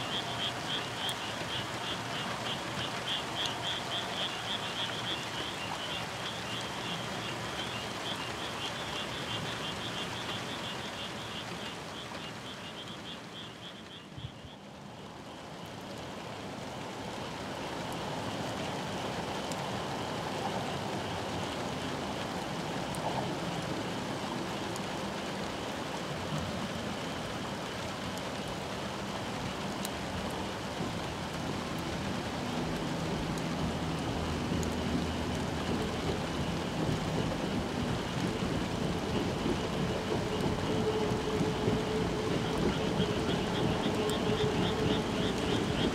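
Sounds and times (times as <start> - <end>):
frogs calling: 0.0 - 14.9, 33.0 - 45.9
steady rushing noise: 28.5 - 45.9.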